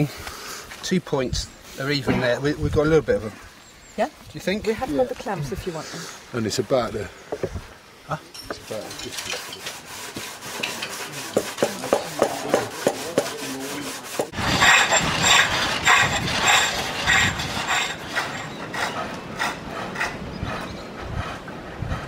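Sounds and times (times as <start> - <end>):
hand blade shaving wood: 9.2 - 20.2
pole lathe cutting wood: 9.4 - 20.1.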